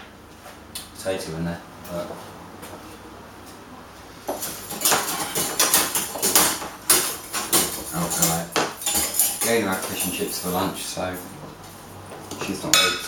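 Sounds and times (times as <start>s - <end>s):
metal kitchen utensils clattering: 4.4s - 11.2s, 12.3s - 13.0s.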